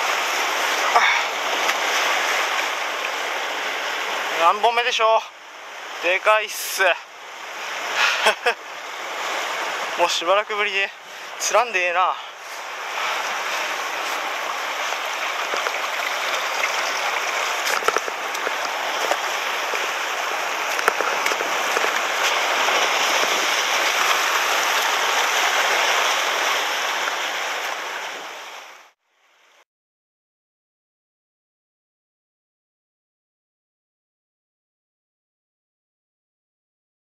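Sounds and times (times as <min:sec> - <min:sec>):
surf washing over rocks: 0:00.0 - 0:29.0.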